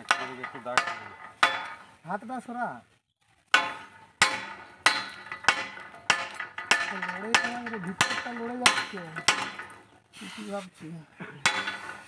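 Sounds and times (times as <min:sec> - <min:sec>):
hammer clanking on iron pipe: 0:00.0 - 0:01.9, 0:03.5 - 0:09.8, 0:11.4 - 0:12.0.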